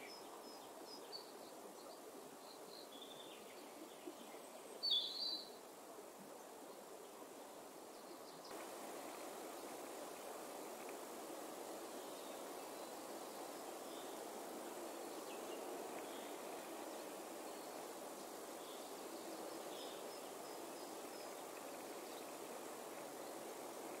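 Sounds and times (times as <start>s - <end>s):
outdoor background noise: 0.0s - 24.0s
faint high bird chirps: 1.1s - 5.6s.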